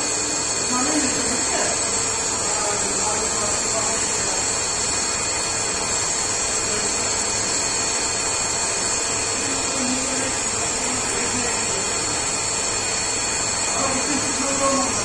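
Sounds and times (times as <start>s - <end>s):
lathe machine noise: 0.0s - 15.0s.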